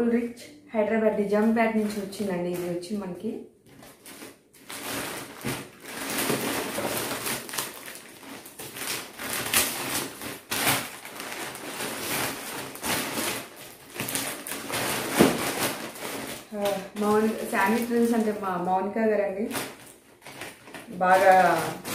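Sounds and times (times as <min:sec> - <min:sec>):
parcel packaging rustling: 0:01.2 - 0:21.9.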